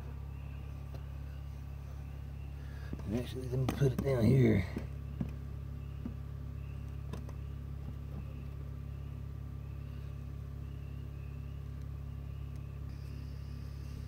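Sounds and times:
faint high chirp: 0.0 - 2.9, 5.0 - 14.0
low mechanical hum: 0.0 - 14.0.

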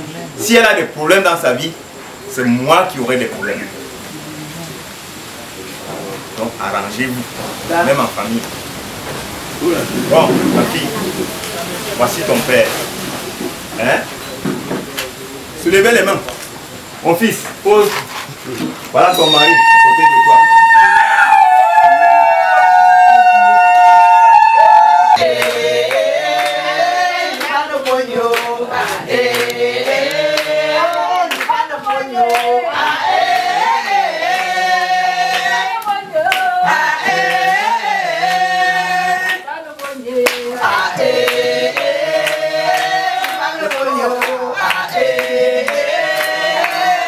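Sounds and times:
group singing in chorus: 21.3 - 47.0
hands clapping in time: 39.3 - 40.5.

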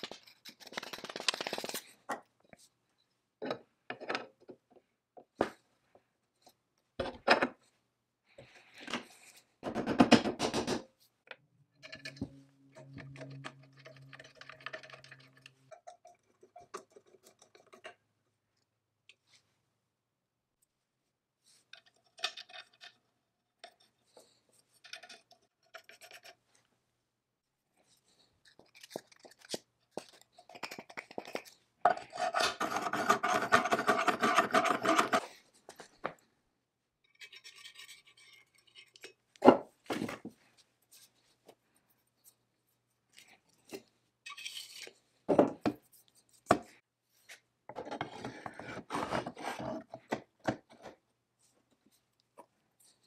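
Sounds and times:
metal scraping and sliding: 11.7 - 16.1.

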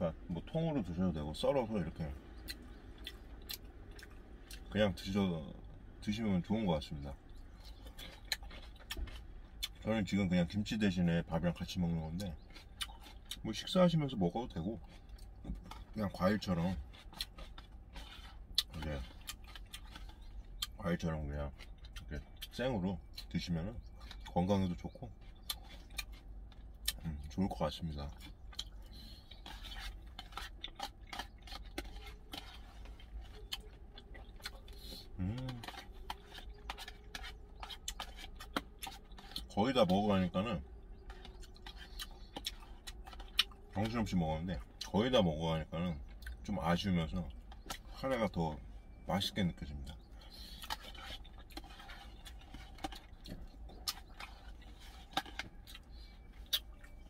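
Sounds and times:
steady low hum: 0.0 - 57.0
chewing: 0.1 - 57.0.

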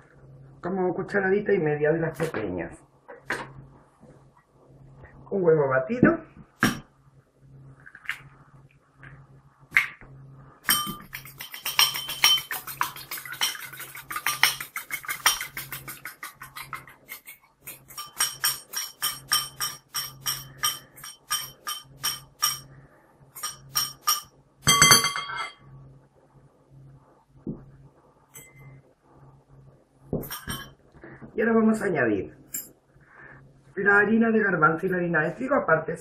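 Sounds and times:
fork beating egg in bowl: 10.7 - 22.7, 23.4 - 24.3
glass bowl clatter: 10.7 - 22.7, 23.4 - 25.6, 30.2 - 30.7.

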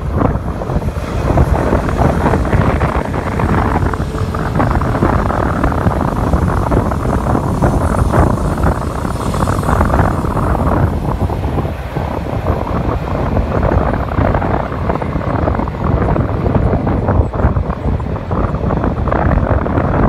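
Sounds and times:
freight train rumbling past: 0.0 - 20.0
wind buffeting microphone: 0.0 - 20.0.

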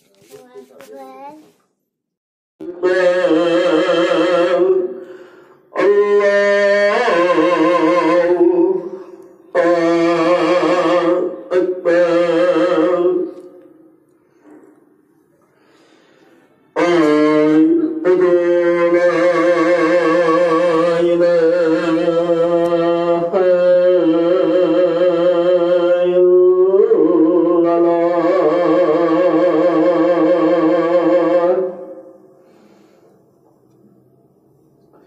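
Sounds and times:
solo voice chanting with vibrato: 2.6 - 14.0, 16.7 - 32.6.

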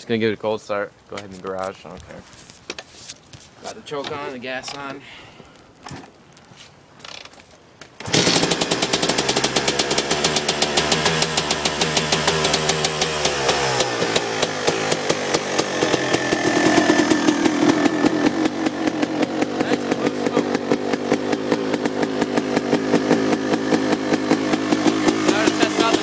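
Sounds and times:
two-stroke engine popping: 8.0 - 26.0.

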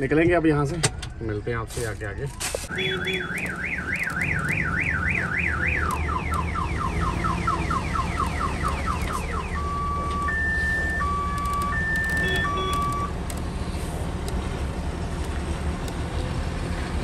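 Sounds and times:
diesel engine rumbling: 0.0 - 17.0
electronic multi-tone siren: 2.7 - 13.1.

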